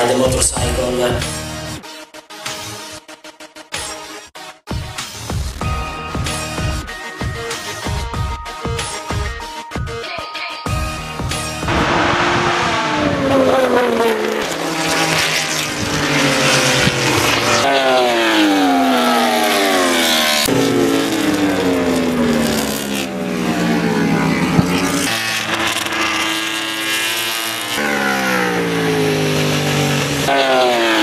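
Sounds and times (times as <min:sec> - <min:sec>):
racing motorcycles passing: 0:11.6 - 0:31.0.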